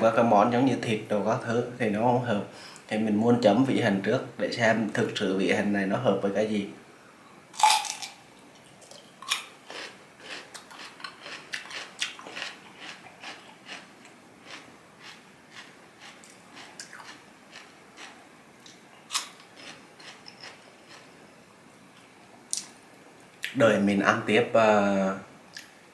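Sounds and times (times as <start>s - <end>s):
cucumber crunching: 9.2s - 21.1s.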